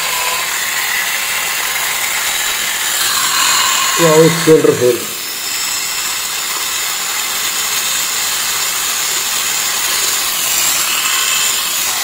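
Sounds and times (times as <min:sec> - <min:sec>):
epilator motor whine: 0:00.0 - 0:08.2.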